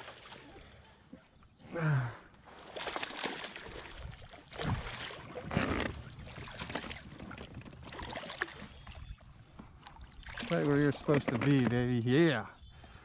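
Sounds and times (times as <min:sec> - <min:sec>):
fish splashing in water: 0:02.6 - 0:09.1, 0:09.9 - 0:10.8.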